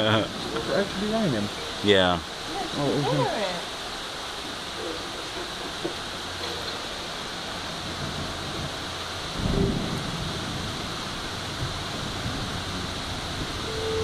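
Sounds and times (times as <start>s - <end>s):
steady rain: 0.0s - 14.0s
thunder rumble: 5.5s - 14.0s.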